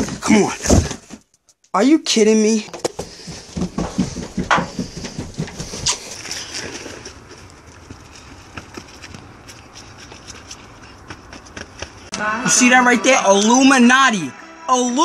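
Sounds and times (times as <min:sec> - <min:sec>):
thumps on carpeted stairs: 0:02.7 - 0:06.0.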